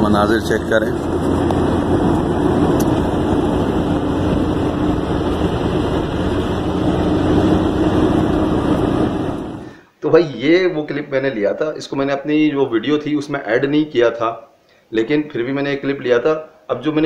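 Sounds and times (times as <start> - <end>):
car road and engine noise: 0.0 - 9.8.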